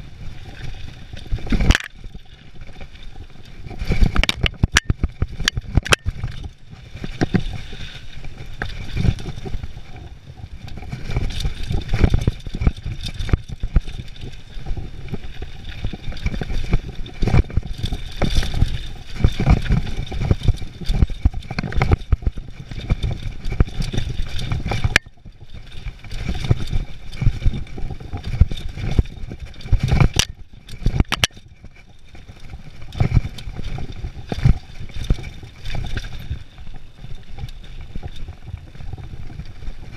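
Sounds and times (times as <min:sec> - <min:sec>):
wind on microphone: 0:00.0 - 0:39.9
bike clattering and knocking: 0:01.6 - 0:02.0, 0:30.0 - 0:31.4.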